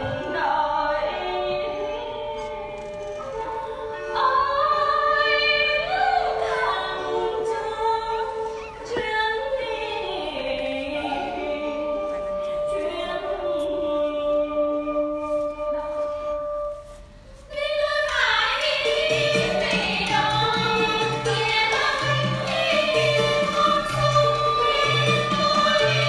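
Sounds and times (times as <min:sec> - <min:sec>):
small traditional ensemble: 0:00.0 - 0:26.0
woman singing with vibrato: 0:03.7 - 0:15.8, 0:17.5 - 0:26.0.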